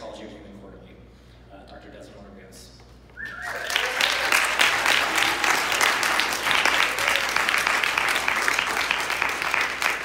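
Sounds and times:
audience applauding: 0:03.3 - 0:10.0.

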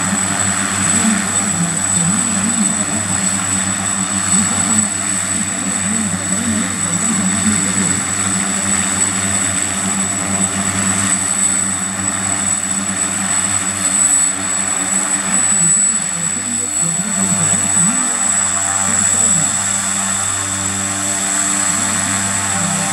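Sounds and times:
propeller drone: 0:00.0 - 0:22.9
turbine whine: 0:00.0 - 0:22.9.

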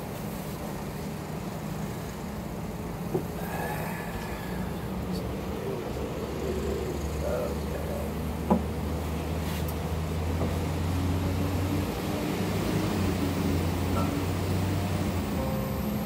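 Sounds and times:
low engine-like hum: 0:00.0 - 0:16.0
acoustic guitar knock: 0:08.5 - 0:08.7.

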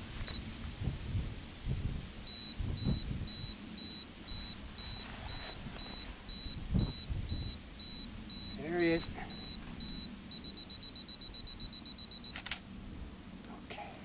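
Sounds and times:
camera self-timer beeping: 0:02.3 - 0:12.6.

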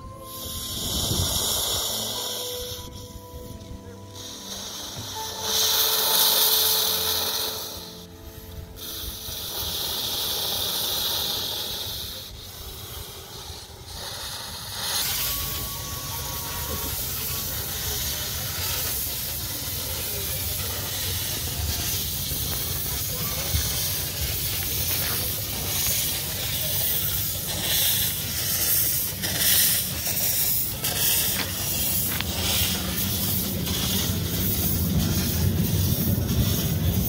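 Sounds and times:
steam hissing in bursts: 0:00.0 - 0:37.0
low rumble: 0:30.0 - 0:37.0.

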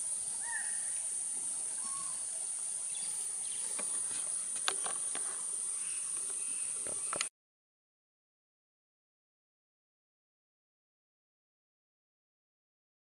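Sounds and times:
insects droning: 0:00.0 - 0:07.3.

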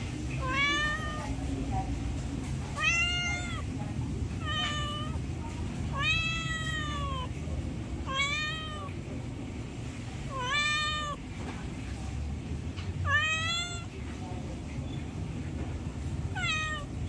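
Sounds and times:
cat meowing: 0:00.3 - 0:01.4, 0:02.7 - 0:07.4, 0:08.0 - 0:09.0, 0:10.2 - 0:11.2, 0:13.0 - 0:14.0, 0:16.3 - 0:17.0.

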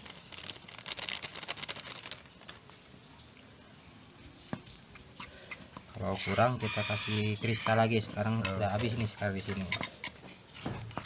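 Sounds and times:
paper crinkling: 0:00.0 - 0:03.1.

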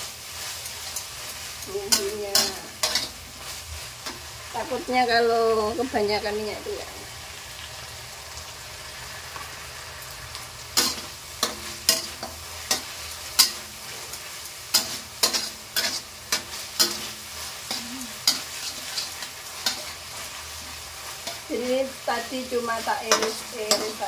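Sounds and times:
frying sizzle: 0:00.0 - 0:24.0
metal spatula scraping a wok: 0:00.2 - 0:06.0, 0:10.7 - 0:24.0.

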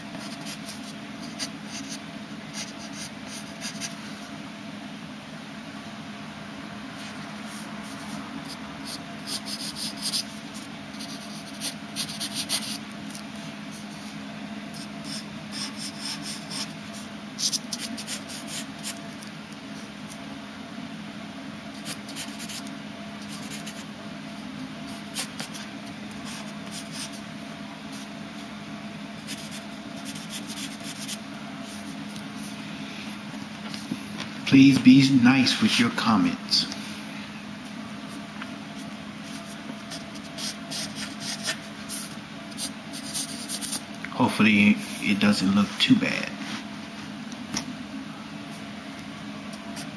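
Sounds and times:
steady low hum: 0:00.0 - 0:49.9
pencil scratching on paper: 0:00.1 - 0:04.0, 0:08.8 - 0:12.8, 0:14.8 - 0:19.0, 0:21.8 - 0:23.9, 0:24.9 - 0:27.2, 0:29.2 - 0:32.0, 0:38.8 - 0:43.8.

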